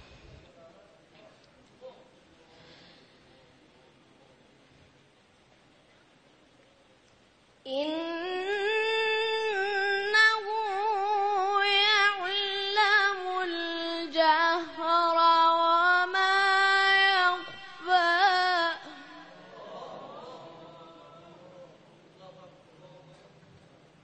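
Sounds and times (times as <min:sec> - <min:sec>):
boy reciting in melodic style: 0:07.6 - 0:19.7.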